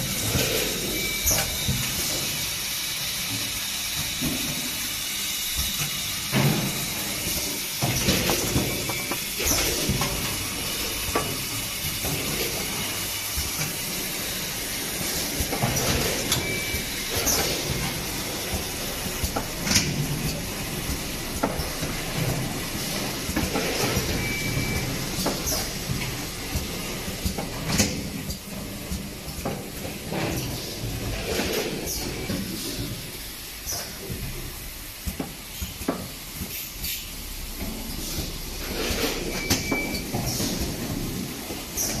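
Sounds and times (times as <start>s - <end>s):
packing machines running: 0.0s - 42.0s
sharp hisses and clacks: 35.0s - 39.4s.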